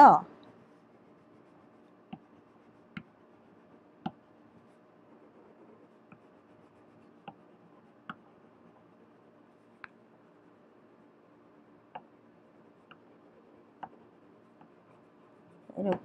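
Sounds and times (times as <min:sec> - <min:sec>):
pen scratching on paper: 0:00.7 - 0:02.8.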